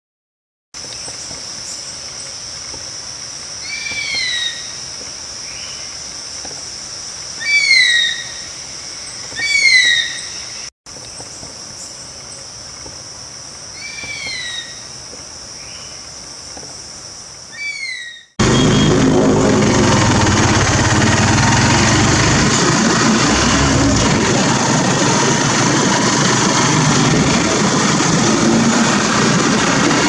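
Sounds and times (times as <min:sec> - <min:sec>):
whistled bird calls: 0:03.6 - 0:04.8, 0:07.4 - 0:10.7, 0:13.8 - 0:14.9, 0:17.5 - 0:18.9.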